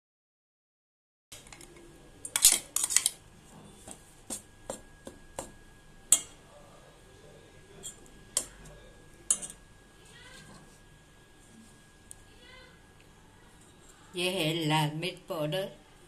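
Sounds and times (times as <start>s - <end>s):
spoon clinking in steel bowl: 9.3s - 9.6s.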